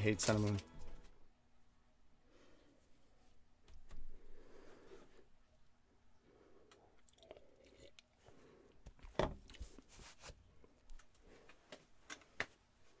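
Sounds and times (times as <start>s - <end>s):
drinking from a glass: 7.0s - 8.2s.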